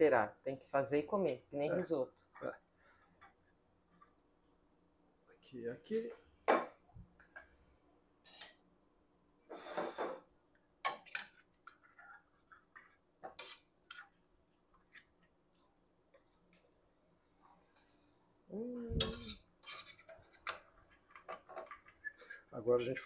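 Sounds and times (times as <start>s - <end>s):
metal scraping a frying pan: 13.3s - 14.0s, 19.0s - 20.6s.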